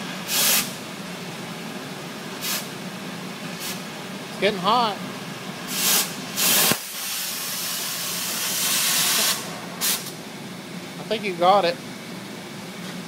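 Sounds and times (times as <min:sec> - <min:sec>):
cutting torch hissing: 0:05.7 - 0:10.2.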